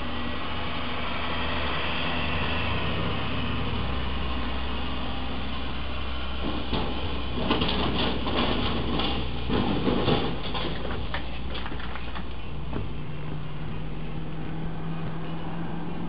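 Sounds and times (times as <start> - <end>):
low vehicle rumble: 0.0 - 16.0
metal scraping and crunching: 6.3 - 12.9.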